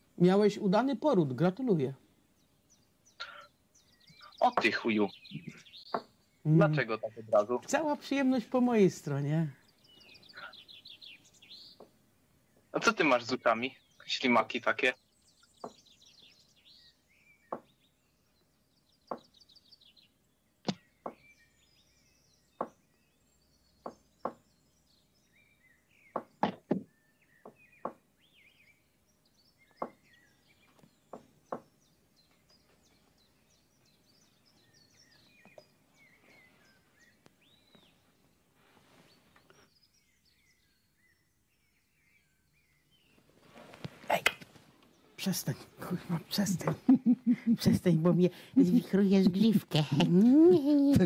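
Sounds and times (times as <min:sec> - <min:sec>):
sharp knocks: 0:19.1 - 0:19.3, 0:26.1 - 0:28.0, 0:31.1 - 0:31.7.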